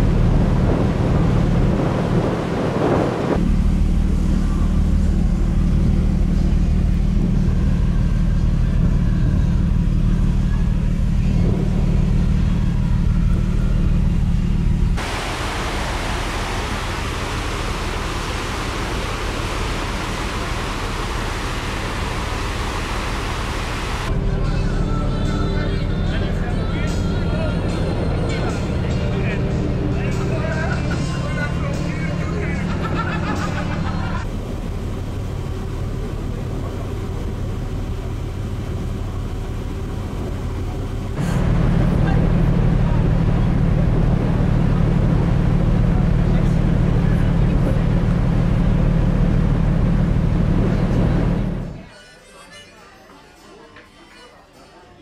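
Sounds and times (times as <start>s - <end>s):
heavy low rumble: 0.0s - 51.8s
ferry engine drone and rushing: 0.0s - 51.9s
rushing hiss of wake water: 15.0s - 24.1s.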